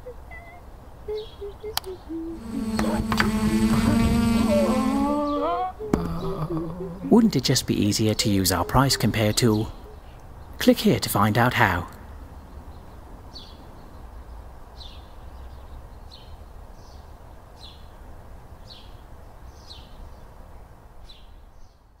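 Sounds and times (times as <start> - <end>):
bird chirping: 0.0 - 10.7.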